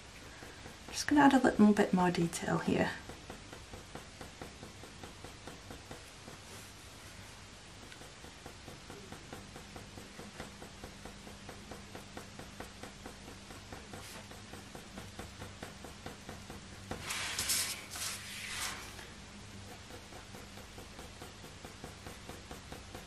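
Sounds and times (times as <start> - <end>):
faint low hum: 0.0 - 23.0
pencil scratching on paper: 0.2 - 23.0
paper rustle: 17.0 - 19.1.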